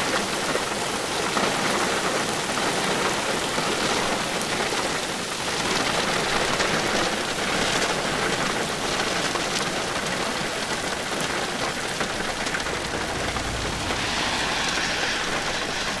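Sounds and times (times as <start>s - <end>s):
heavy rain hiss: 0.0s - 16.0s.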